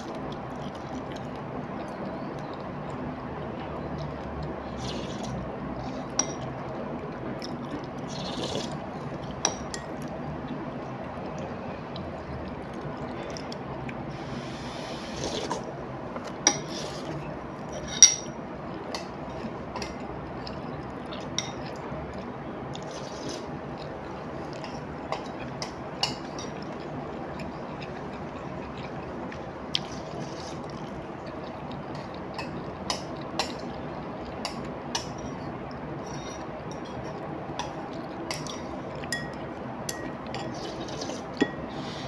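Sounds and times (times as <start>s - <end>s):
steady background noise: 0.0s - 42.0s
slurping noodles: 4.7s - 5.4s, 8.0s - 8.8s, 14.1s - 15.6s, 16.6s - 17.2s, 22.8s - 23.5s, 29.8s - 31.0s, 40.5s - 42.0s.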